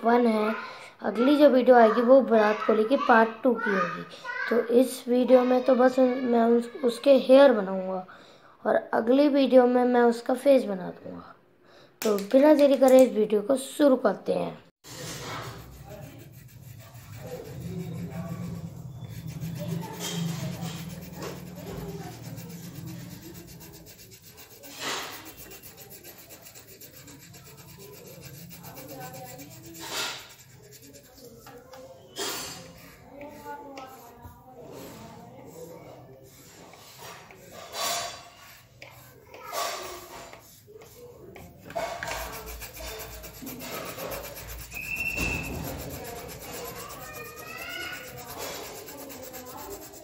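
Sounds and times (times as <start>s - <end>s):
pencil scratching on paper: 14.9s - 50.0s.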